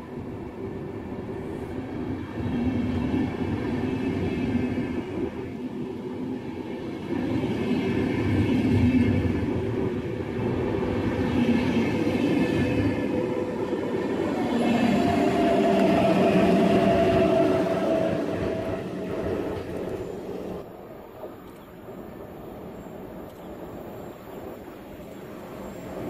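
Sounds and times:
electric locomotive whine: 0:00.0 - 0:26.0
train wheels rumbling: 0:07.2 - 0:23.8.

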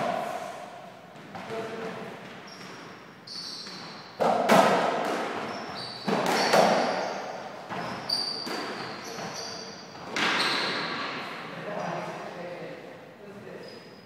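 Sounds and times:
ball striking rackets and wall: 0:00.0 - 0:11.3
shoe squeaks: 0:02.4 - 0:04.2, 0:05.4 - 0:11.2, 0:13.6 - 0:14.0.

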